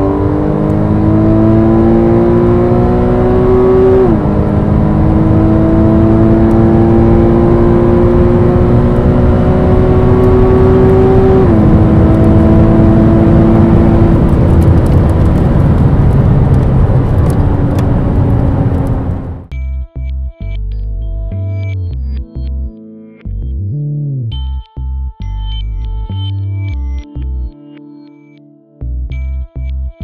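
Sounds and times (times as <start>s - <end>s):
car engine at full throttle: 0.0s - 19.5s.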